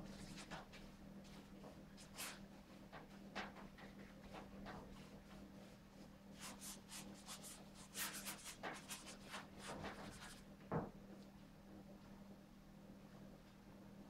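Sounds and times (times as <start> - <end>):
paintbrush strokes on canvas: 5.0 - 10.4.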